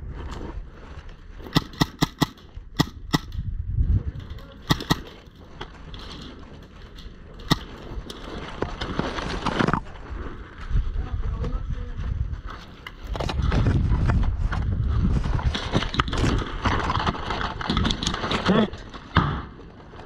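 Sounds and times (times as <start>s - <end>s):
airsoft guns firing: 1.5s - 3.4s, 4.6s - 5.2s, 7.5s - 7.9s
rustling: 4.0s - 20.0s.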